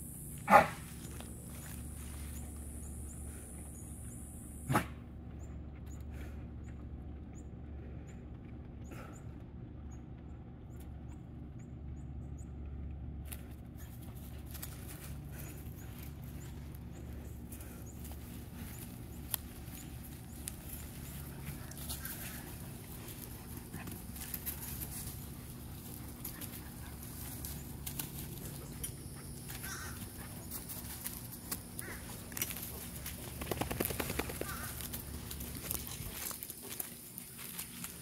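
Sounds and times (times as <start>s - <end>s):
steady low hum: 0.0s - 38.0s
dogs scuffling in grass: 0.5s - 3.0s, 13.3s - 38.0s.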